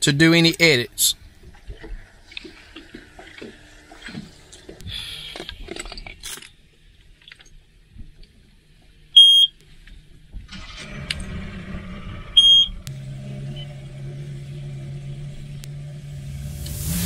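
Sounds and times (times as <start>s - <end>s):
short high-pitched beep: 12.4s - 12.7s.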